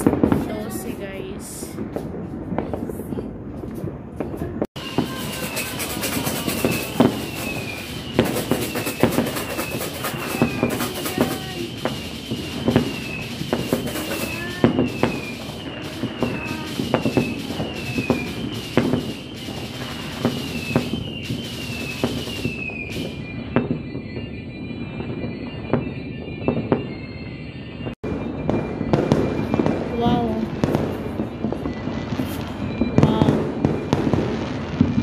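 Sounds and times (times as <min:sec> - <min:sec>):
fireworks banging and crackling: 0:00.0 - 0:35.0
rising firework whistles: 0:00.0 - 0:35.0
high falling chirp: 0:04.8 - 0:23.6.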